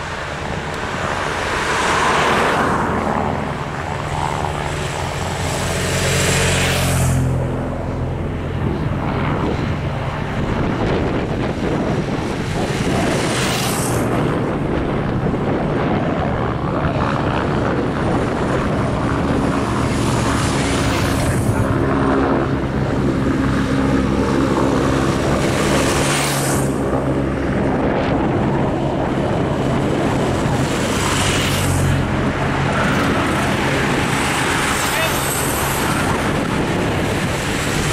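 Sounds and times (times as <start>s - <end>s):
racing bicycles passing: 0.0s - 7.4s, 12.0s - 14.3s, 22.6s - 26.8s, 29.3s - 37.9s
racing motorcycles passing: 0.0s - 9.7s, 10.4s - 14.6s, 16.8s - 28.2s, 28.8s - 37.9s
steady engine drone: 0.0s - 37.9s
wind on microphone: 0.0s - 37.9s.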